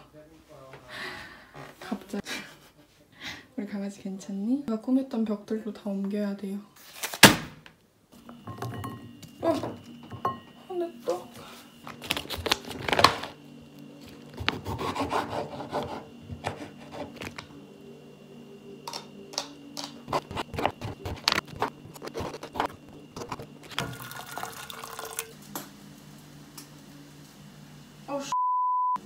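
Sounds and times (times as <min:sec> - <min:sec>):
steady low hum: 0:07.9 - 0:28.3
plastic packaging crinkling: 0:11.9 - 0:13.4.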